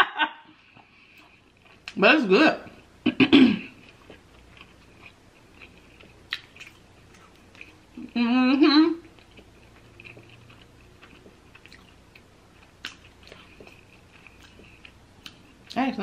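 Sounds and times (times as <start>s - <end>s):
person chewing sandwich: 0.6s - 2.0s, 3.6s - 8.2s, 9.0s - 15.8s.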